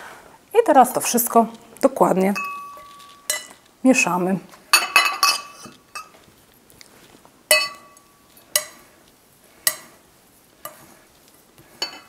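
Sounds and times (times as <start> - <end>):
metal spoon clinking glass bowl: 2.4 - 3.6, 4.8 - 6.2, 7.5 - 8.8, 11.8 - 12.0
spoon stirring dry oat mix: 7.1 - 12.0.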